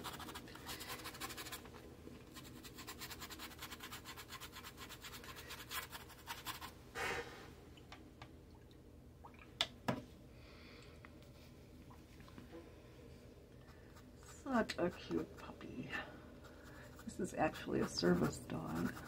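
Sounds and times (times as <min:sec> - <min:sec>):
paintbrush scrubbing on paper: 0:00.0 - 0:01.6, 0:02.3 - 0:06.7, 0:16.4 - 0:19.0.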